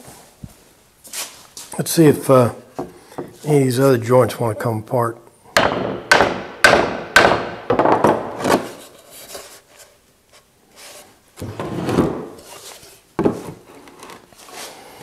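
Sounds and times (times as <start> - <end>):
wooden mallet knocking on wood: 5.6 - 8.4
sharp wooden knock: 5.6 - 8.6.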